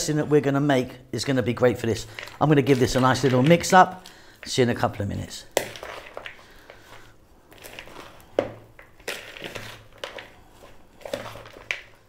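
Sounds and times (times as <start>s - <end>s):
salad rustling in bowl: 1.9s - 12.0s.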